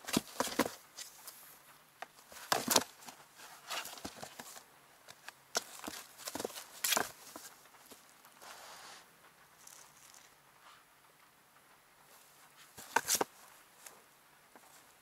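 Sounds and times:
paws thumping on cardboard: 0.0s - 1.2s, 2.2s - 4.6s, 5.6s - 8.0s
kitten claws scratching cardboard: 2.2s - 4.6s, 12.6s - 13.4s.

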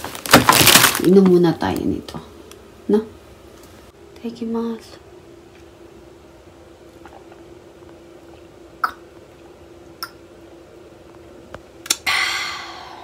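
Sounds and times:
faint steady hum: 0.0s - 13.0s
swallowing gulps: 6.9s - 10.2s
breathy exhale: 12.0s - 13.0s.

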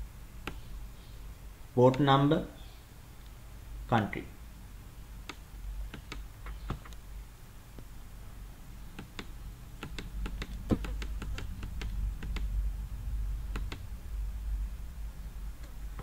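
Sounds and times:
low steady hum: 0.0s - 16.0s
computer clicks and taps: 0.4s - 0.7s, 5.2s - 7.0s, 8.9s - 12.5s, 13.5s - 13.8s.

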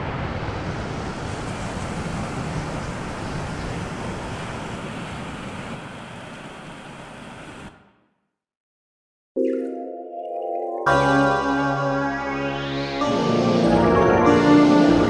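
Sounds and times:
dense wash of sampled notes: 9.4s - 15.0s.

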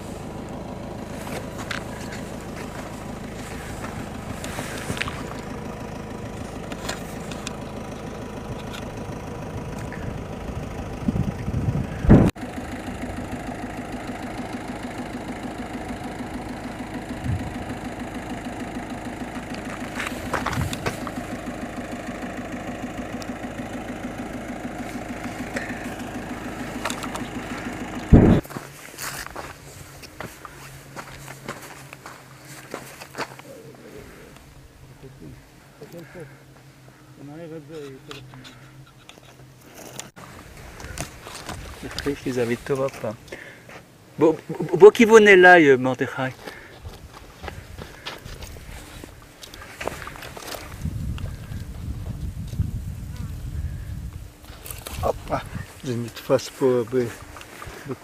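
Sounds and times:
low mechanical hum: 0.0s - 45.0s, 46.0s - 58.0s
loud thumps: 28.1s - 28.5s.

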